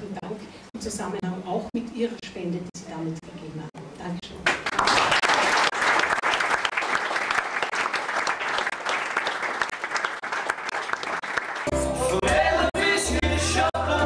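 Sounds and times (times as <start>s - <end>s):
audience applauding: 4.5s - 13.7s
music with heavy bass: 11.7s - 14.0s.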